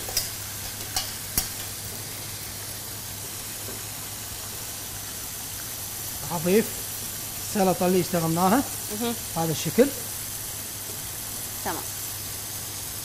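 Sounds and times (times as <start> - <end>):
hot oil sizzling in a pan: 0.0 - 13.0.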